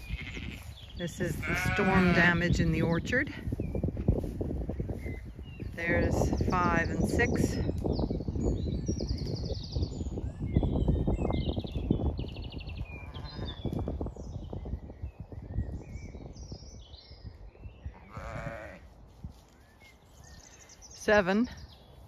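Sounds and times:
sheep bleating: 0:00.0 - 0:00.7, 0:01.4 - 0:02.4, 0:18.0 - 0:18.9.

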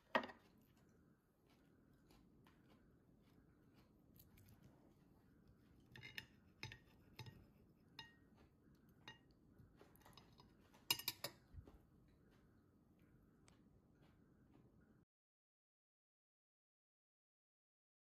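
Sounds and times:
knife and fork clinking on a plate: 0:05.8 - 0:08.4, 0:09.0 - 0:11.5.

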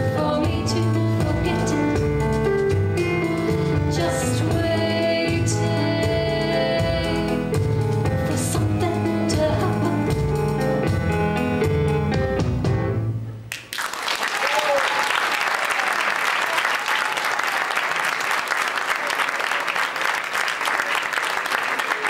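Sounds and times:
music with rhythmic bass line: 0:00.0 - 0:13.3.

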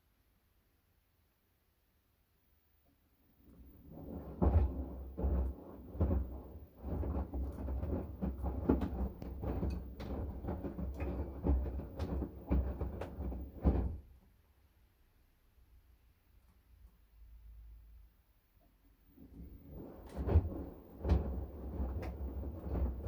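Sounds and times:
washing machine laundry tumbling: 0:03.4 - 0:14.2, 0:19.1 - 0:23.0.

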